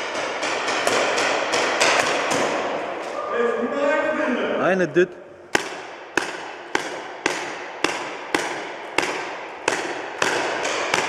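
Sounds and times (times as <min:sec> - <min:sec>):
paintball marker shots echoing: 0:00.0 - 0:03.2, 0:05.5 - 0:11.0.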